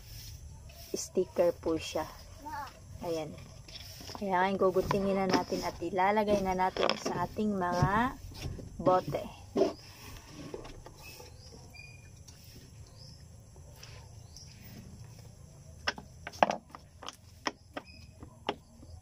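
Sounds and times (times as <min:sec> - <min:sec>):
faint bird chirps: 0:11.0 - 0:15.0.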